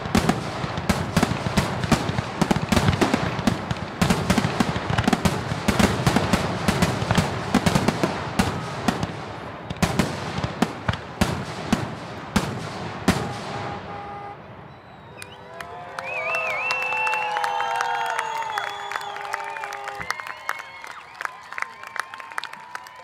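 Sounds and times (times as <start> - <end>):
fireworks bangs and crackles: 0.0 - 15.2.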